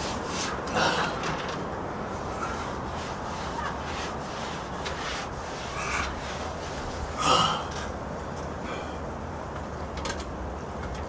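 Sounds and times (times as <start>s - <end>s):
sandpaper rubbing: 0.0s - 0.6s, 2.2s - 7.2s
low background hum: 0.0s - 11.0s.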